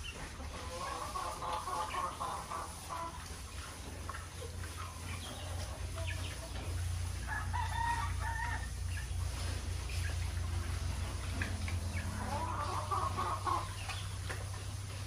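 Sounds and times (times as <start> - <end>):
chickens clucking: 0.0 - 15.0
clicks of pigs feeding: 0.0 - 15.0
steady low hum: 1.5 - 15.0
rooster crowing: 7.3 - 8.8.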